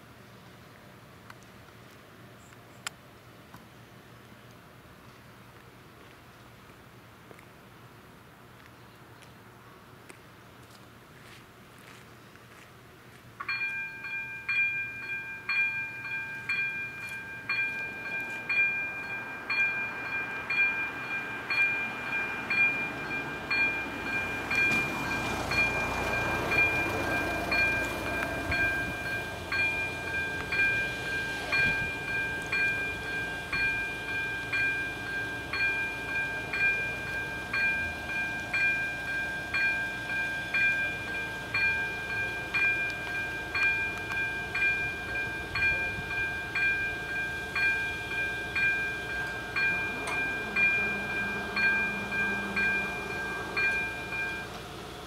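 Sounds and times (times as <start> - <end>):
level crossing bell ringing: 13.4 - 54.9.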